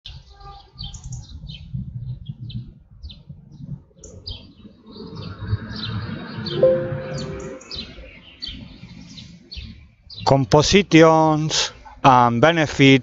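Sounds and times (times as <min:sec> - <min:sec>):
wind rumble on microphone: 0:01.0 - 0:06.1
brief steady tone: 0:06.6 - 0:08.1.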